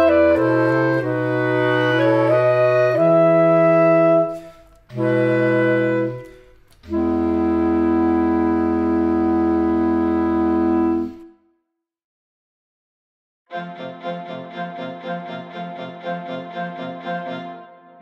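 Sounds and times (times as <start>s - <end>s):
clarinets playing sustained chords: 0.0s - 11.3s.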